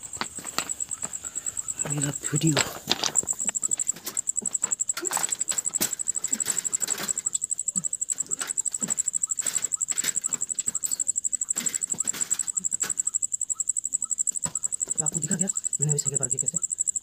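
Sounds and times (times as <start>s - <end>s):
short rustles and knocks: 0.0s - 7.3s
crickets chirping: 0.0s - 17.0s.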